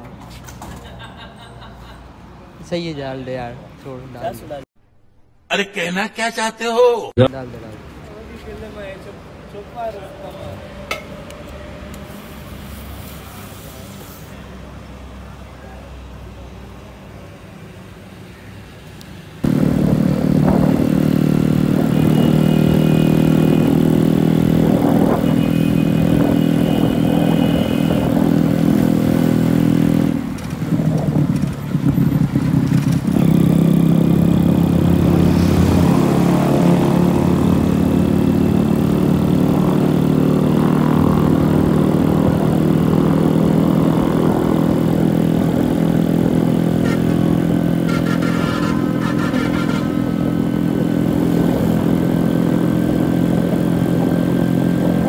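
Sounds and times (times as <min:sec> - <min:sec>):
motorcycle engine running: 0:19.4 - 0:55.0.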